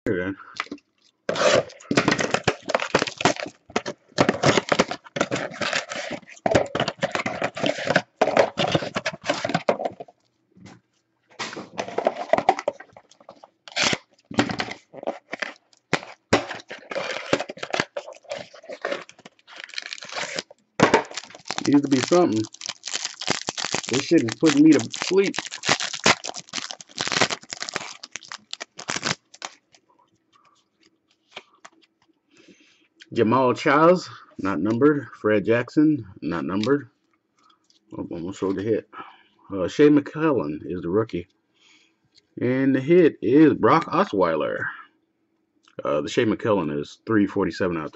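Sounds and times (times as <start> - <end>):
plastic wrap crinkling and tearing: 1.3 - 10.0, 11.4 - 29.8.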